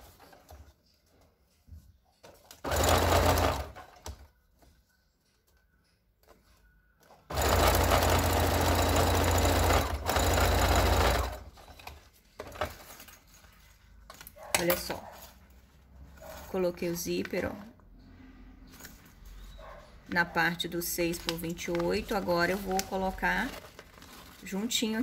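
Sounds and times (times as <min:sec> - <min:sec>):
sewing machine stitching: 0:02.4 - 0:04.2, 0:07.3 - 0:11.8.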